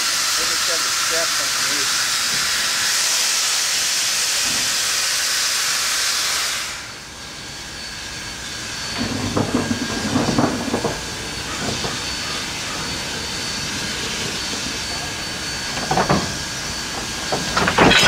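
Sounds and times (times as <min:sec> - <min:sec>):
steam locomotive hissing steam: 0:00.0 - 0:17.8.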